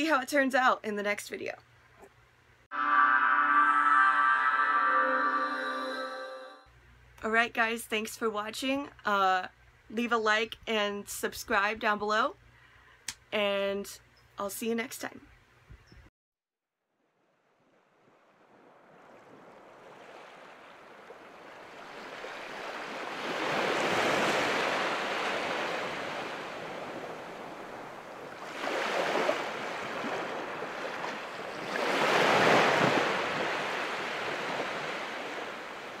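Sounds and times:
ocean waves surging: 19.8 - 36.0.

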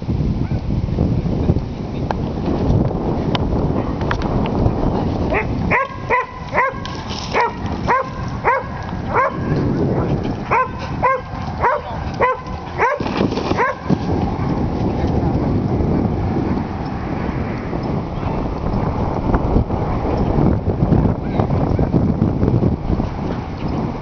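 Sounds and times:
dog barking: 5.3 - 6.8, 7.4 - 13.0, 13.6 - 14.6.

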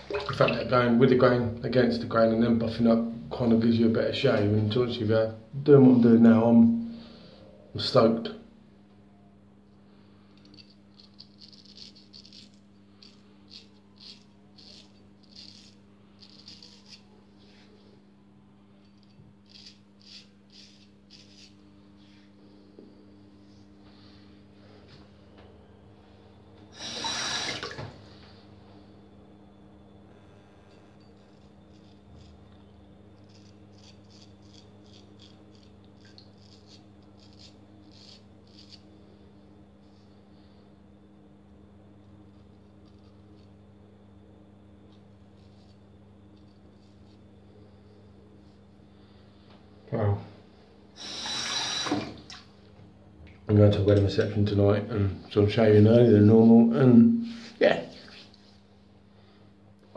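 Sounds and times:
razor scraping stubble: 10.6 - 17.1, 18.9 - 21.6, 33.2 - 38.9.

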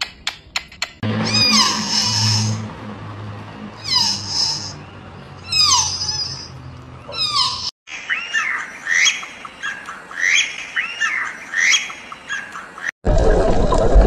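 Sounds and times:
bird calling: 1.2 - 2.7, 3.8 - 12.9.

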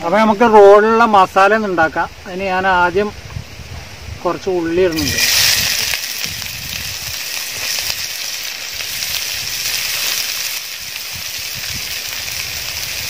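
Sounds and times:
onions sizzling in hot oil: 4.3 - 13.0.

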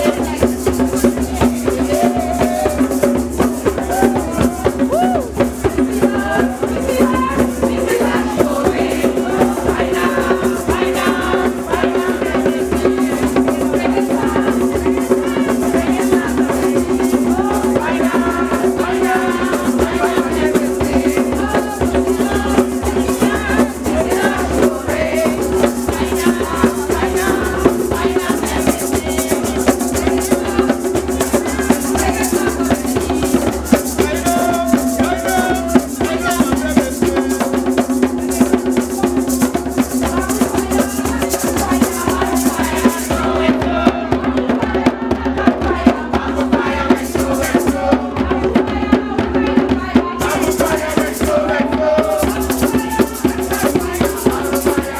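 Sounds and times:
shakers rattling: 0.0 - 43.7, 46.8 - 48.0, 50.2 - 54.9
group singing: 0.0 - 54.9
hand drums fast rhythm: 0.0 - 54.9.

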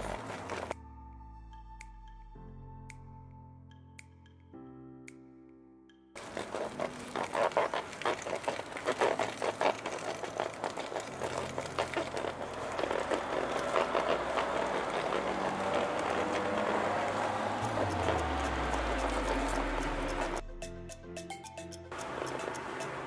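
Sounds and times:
sausage stuffer clicking and rattling: 6.2 - 16.6.

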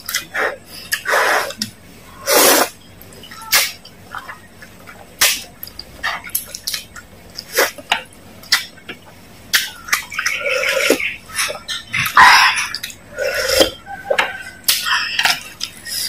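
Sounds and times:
chewing with wet mouth clicks: 3.8 - 15.9.

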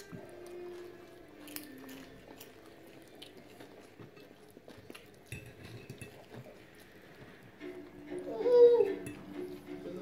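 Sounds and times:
person chewing: 0.0 - 9.8.

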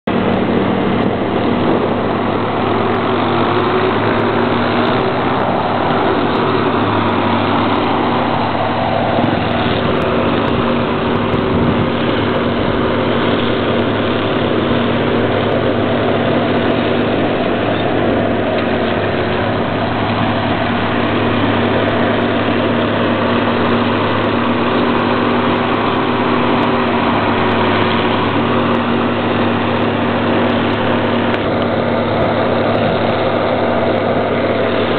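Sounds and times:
diesel engine running steadily: 0.0 - 34.9.

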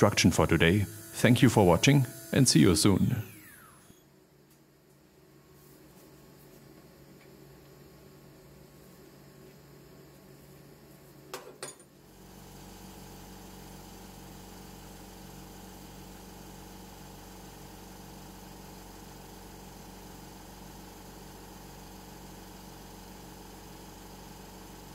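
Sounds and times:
steady machine hum: 0.0 - 11.3.

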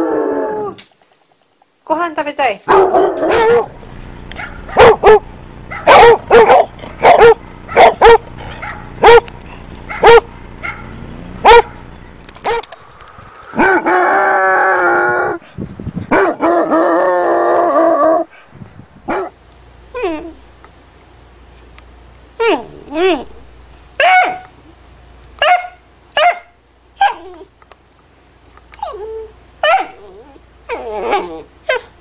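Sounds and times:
dog howling: 0.0 - 0.8, 2.8 - 3.8, 13.5 - 15.5, 16.1 - 18.3, 28.8 - 31.9
dogs barking: 2.7 - 12.8, 13.6 - 14.0, 16.1 - 16.8, 19.1 - 19.4, 24.0 - 24.6, 25.4 - 27.5, 29.6 - 30.2.

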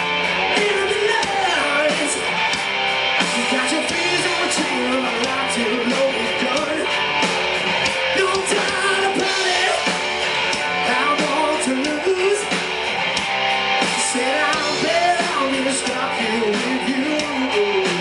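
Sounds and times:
drums: 0.0 - 18.0
electric guitars: 0.0 - 18.0
person singing: 0.5 - 2.4, 3.2 - 6.9, 8.1 - 12.6, 13.8 - 18.0.

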